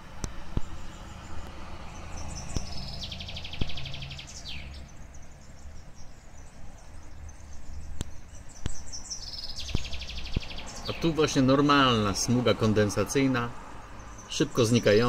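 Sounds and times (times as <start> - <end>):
songbird trilling: 2.0 - 13.4.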